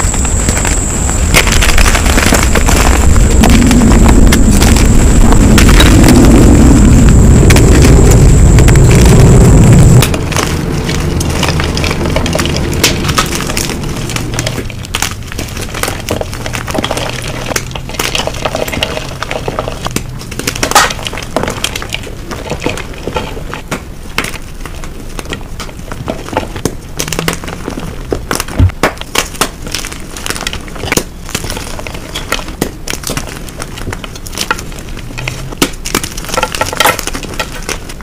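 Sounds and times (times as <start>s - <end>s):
loud low rumble: 0.0s - 17.9s.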